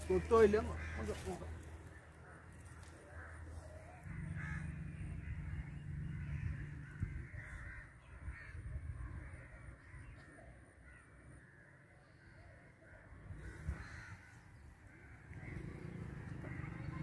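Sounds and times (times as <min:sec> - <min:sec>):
crows cawing: 0:00.0 - 0:17.0
low hum: 0:03.5 - 0:07.7.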